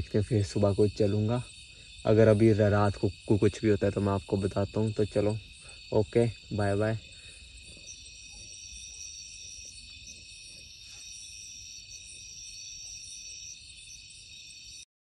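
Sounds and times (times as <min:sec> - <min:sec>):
crickets and insects trilling: 0:00.0 - 0:14.9
higher insect trill: 0:00.0 - 0:14.9.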